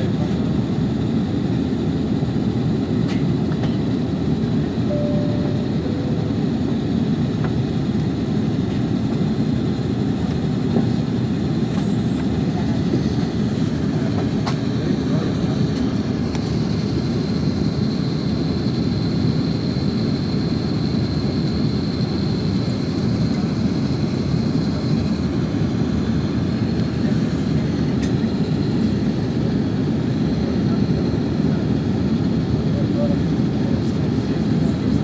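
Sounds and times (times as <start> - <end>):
airliner cabin air rush and engines: 0.0 - 35.0
faint high whine: 4.8 - 7.8.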